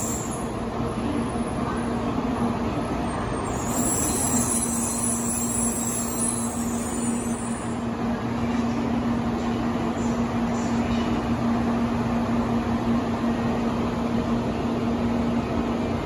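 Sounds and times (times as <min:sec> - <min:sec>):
high squeal from train: 0:00.0 - 0:00.6, 0:03.0 - 0:07.9
train rolling to a stop: 0:00.0 - 0:16.0.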